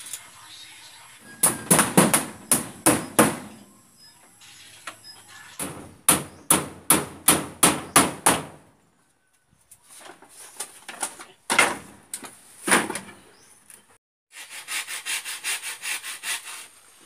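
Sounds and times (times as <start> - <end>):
hammer striking wooden panel: 1.4 - 3.6, 5.6 - 8.6.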